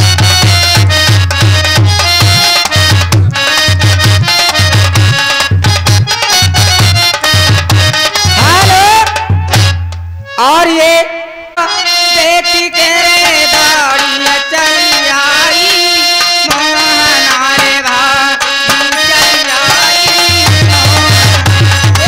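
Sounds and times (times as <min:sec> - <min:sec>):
deep steady drum beat: 0:00.0 - 0:10.0, 0:20.2 - 0:22.0
harmonium melody: 0:00.0 - 0:22.0.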